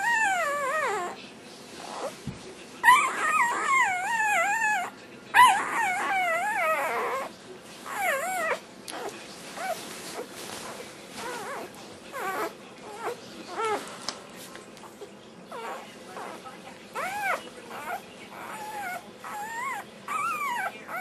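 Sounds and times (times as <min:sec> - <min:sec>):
puppy whimpering: 0:00.0 - 0:01.2, 0:01.8 - 0:02.2, 0:02.8 - 0:13.9, 0:14.8 - 0:21.0
puppy whine-howling: 0:00.0 - 0:01.2, 0:02.8 - 0:10.2, 0:11.2 - 0:13.8, 0:15.5 - 0:16.4, 0:17.0 - 0:21.0.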